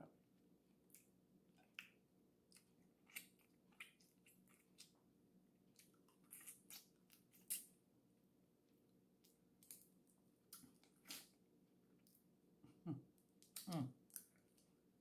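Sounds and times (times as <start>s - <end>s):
mouth smacks and clicks eating: 0.9s - 5.0s, 13.4s - 14.7s.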